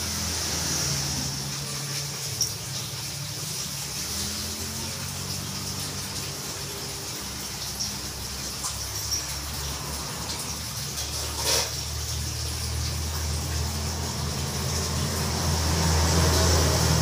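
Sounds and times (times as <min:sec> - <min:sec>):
rushing water-like noise: 0:00.0 - 0:17.0.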